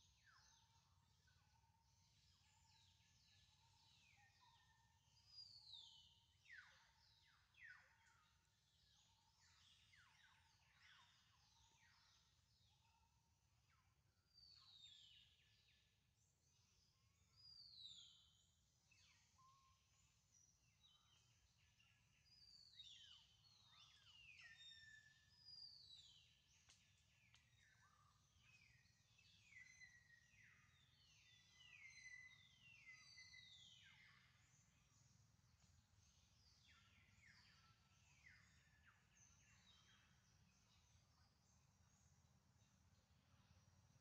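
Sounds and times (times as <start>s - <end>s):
faint whistling bird calls: 17.4s - 35.1s.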